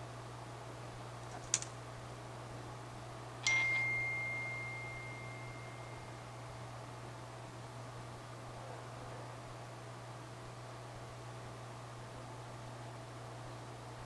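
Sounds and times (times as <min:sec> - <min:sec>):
metal tool striking metal: 0:03.4 - 0:06.1
high metallic ringing tone: 0:03.4 - 0:07.3.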